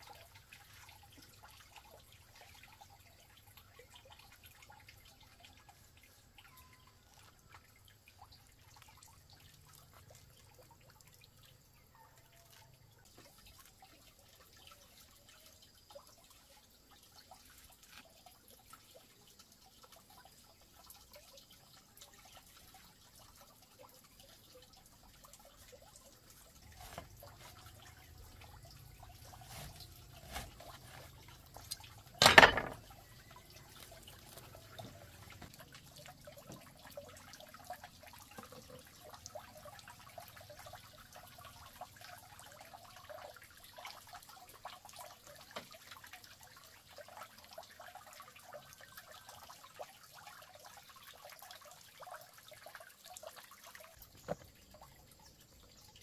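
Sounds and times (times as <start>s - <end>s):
faint dripping liquid: 0.0s - 32.2s, 32.8s - 56.0s.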